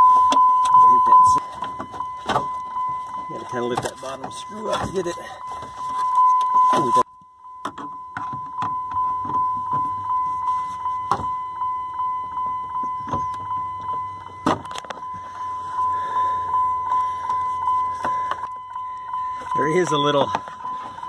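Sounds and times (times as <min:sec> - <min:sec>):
dashboard warning chime beeping: 0:00.0 - 0:21.0.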